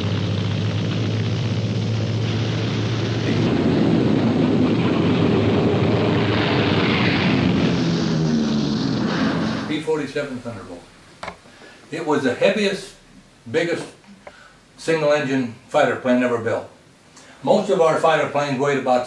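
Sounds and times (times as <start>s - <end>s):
propeller aircraft engine running: 0.0s - 9.7s.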